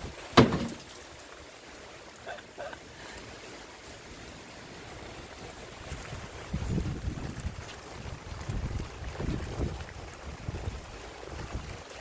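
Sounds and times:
light rain hissing: 0:00.0 - 0:12.0
wind rushing on microphone: 0:05.7 - 0:12.0.

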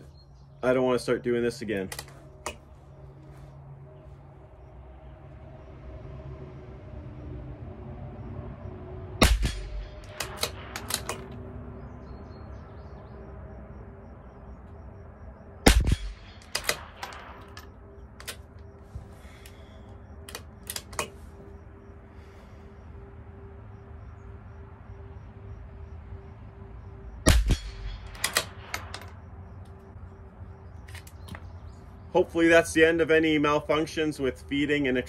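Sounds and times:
metallic rifle bolt clicks: 0:01.8 - 0:02.6, 0:10.0 - 0:11.4, 0:15.9 - 0:18.6, 0:20.2 - 0:21.2, 0:27.5 - 0:29.1
rifle shots: 0:09.2 - 0:11.4, 0:15.6 - 0:17.7, 0:27.3 - 0:29.1.

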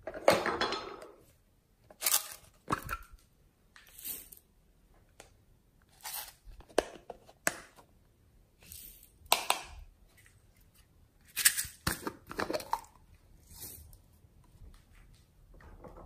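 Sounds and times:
plastic lids clicking and tapping: 0:06.6 - 0:07.8, 0:09.3 - 0:09.9.

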